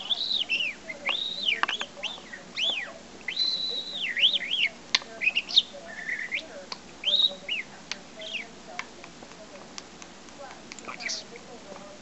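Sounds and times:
budgerigar whistling: 0.0s - 8.6s, 10.9s - 11.3s
sharp clicks: 6.2s - 11.2s.

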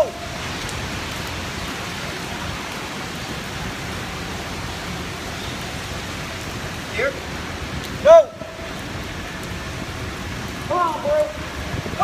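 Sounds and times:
rain on wet pavement: 0.0s - 12.0s.

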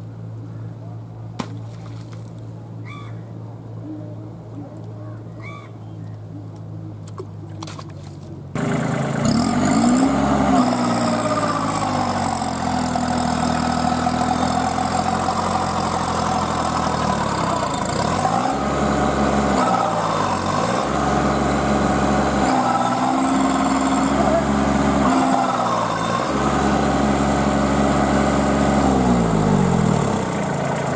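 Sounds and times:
tractor diesel engine revving: 8.5s - 30.9s.

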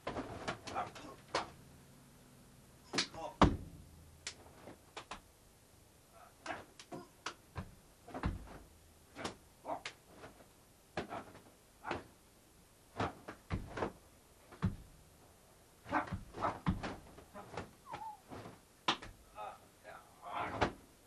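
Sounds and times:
fight hits and thuds: 2.9s - 4.8s, 6.5s - 9.4s, 11.0s - 12.2s, 13.0s - 15.0s, 15.9s - 19.2s, 20.5s - 20.8s.

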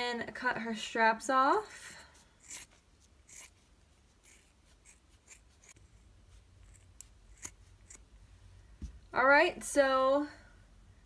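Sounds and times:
scissors snipping: 6.7s - 8.0s.

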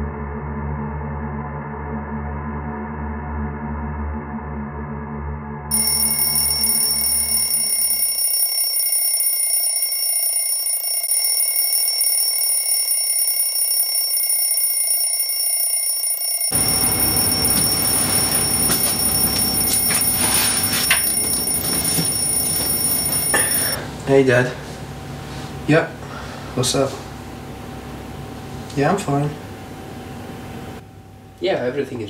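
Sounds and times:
high-pitched electronic ringing tone: 5.7s - 23.8s
room noise: 5.7s - 23.8s.

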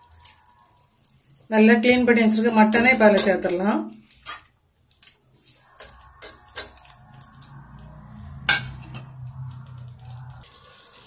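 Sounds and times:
ladle scraping metal pot: 8.3s - 11.0s
metal clank: 8.4s - 9.2s.

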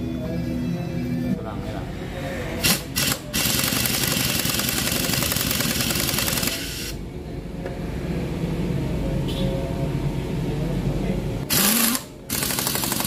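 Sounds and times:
steady low hum: 0.0s - 13.0s
impact wrench hammering: 2.6s - 6.8s, 11.5s - 13.0s.

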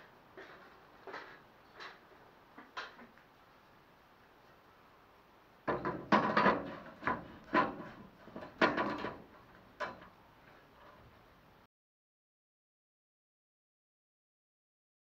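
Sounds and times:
steel strip knocking on metal: 5.7s - 10.1s.

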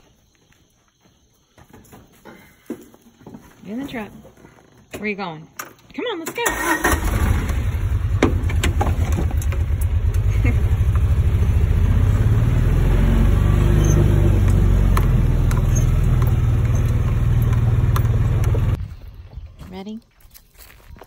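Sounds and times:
truck engine running: 6.5s - 18.8s.

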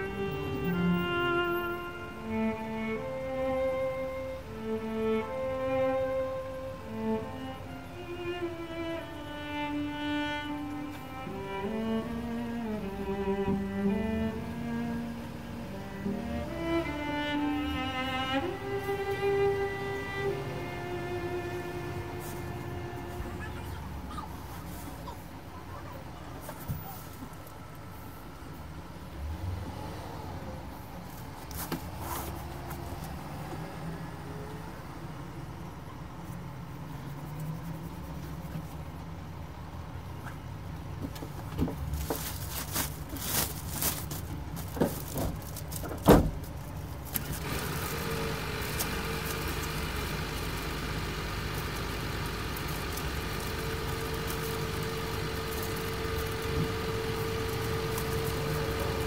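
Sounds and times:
diesel engine idling: 0.0s - 26.3s, 46.8s - 59.0s
plastic sheeting rustling and knocking: 41.2s - 49.8s
high steady whirr: 47.1s - 59.0s.

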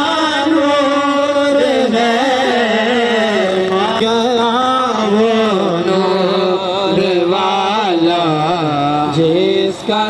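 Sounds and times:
man singing long wavering notes: 0.0s - 10.0s.

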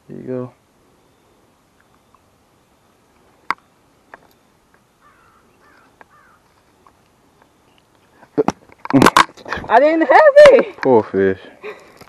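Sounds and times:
faint bird calling: 0.3s - 8.3s.

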